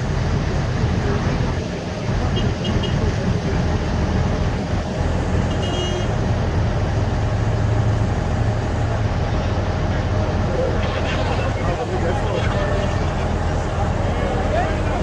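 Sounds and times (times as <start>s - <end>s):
engine rumble: 0.0s - 15.0s.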